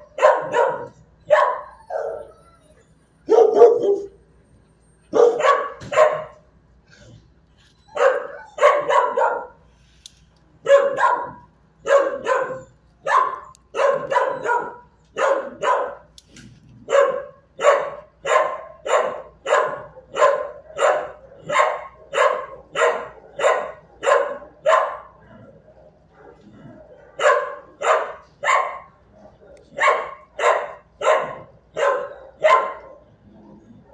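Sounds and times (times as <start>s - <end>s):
dog barking: 0.0s - 2.3s, 3.3s - 4.2s, 5.1s - 6.4s, 8.0s - 9.6s, 10.6s - 16.1s, 16.8s - 25.2s, 26.1s - 33.1s.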